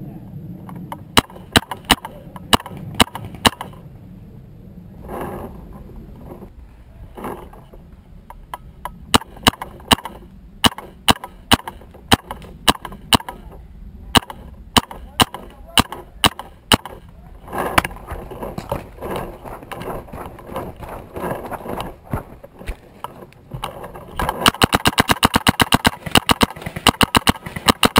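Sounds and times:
paintball marker shots: 0:01.2 - 0:03.8, 0:09.1 - 0:13.5, 0:14.1 - 0:17.0, 0:24.4 - 0:27.9.

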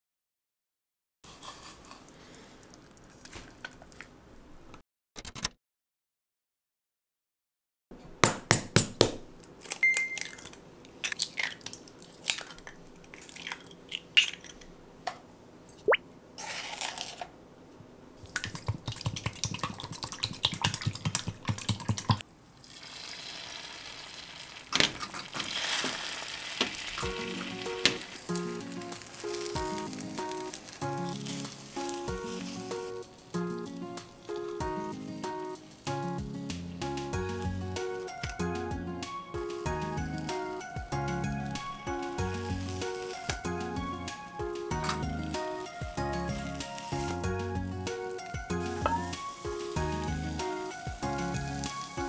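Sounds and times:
egg sizzling in a pan: 0:18.2 - 0:36.0, 0:41.6 - 0:43.5, 0:45.3 - 0:47.3, 0:47.9 - 0:52.0
light background music: 0:27.0 - 0:52.0.

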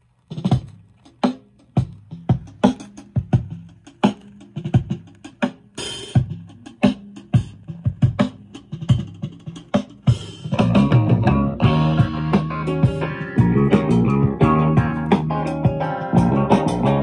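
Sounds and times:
rock drum beat: 0:00.3 - 0:17.0
rock band playing: 0:10.5 - 0:17.0.

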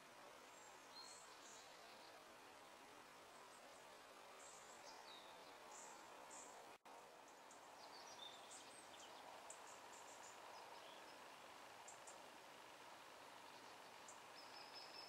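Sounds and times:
steady low hiss: 0:00.0 - 0:15.0
bird chirps: 0:13.5 - 0:15.0.

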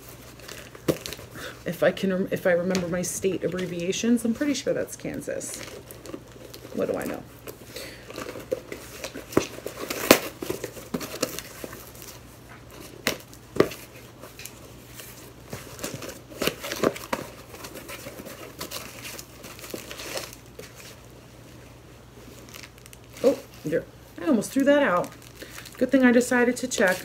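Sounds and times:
packaging crinkling and rustling: 0:00.0 - 0:02.0, 0:02.6 - 0:27.0.

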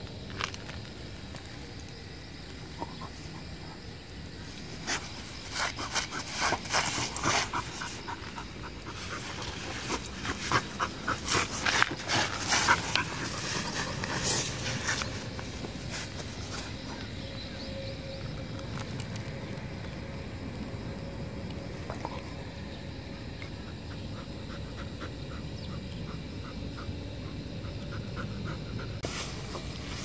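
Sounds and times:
body scraping through sand: 0:04.8 - 0:08.1, 0:08.9 - 0:16.8
dog panting: 0:04.8 - 0:15.3, 0:23.6 - 0:29.8.

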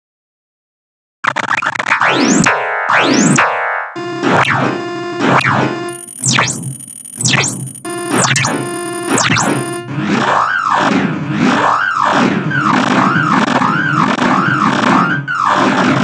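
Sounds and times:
dense clashing synthesized note clusters: 0:02.0 - 0:16.0.

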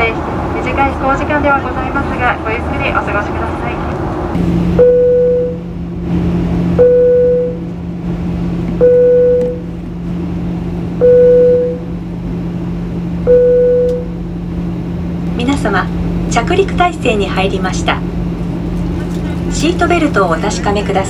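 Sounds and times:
cabin hum in flight: 0:00.0 - 0:21.0
airliner cabin chime: 0:04.4 - 0:05.8, 0:06.7 - 0:07.8, 0:08.7 - 0:09.8, 0:10.9 - 0:14.5.

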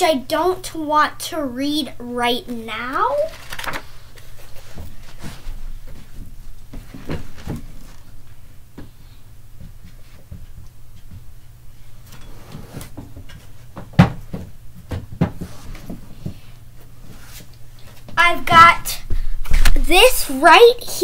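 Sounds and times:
low steady hum: 0:00.0 - 0:21.0
objects knocking and rustling: 0:04.4 - 0:08.1, 0:12.1 - 0:16.5.

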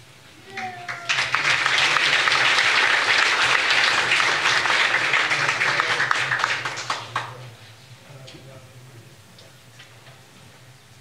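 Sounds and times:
audience applauding: 0:00.5 - 0:07.5.

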